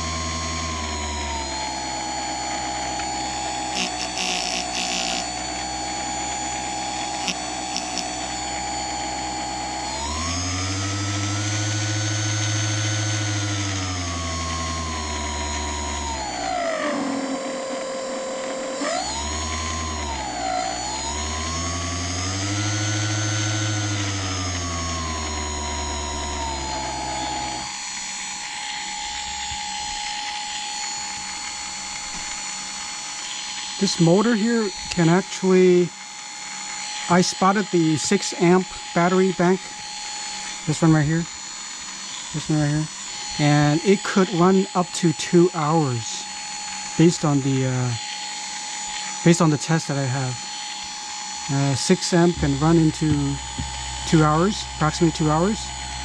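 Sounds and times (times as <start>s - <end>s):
deep hum: 0.0s - 32.4s, 51.5s - 56.0s
electric motor whining: 0.0s - 56.0s.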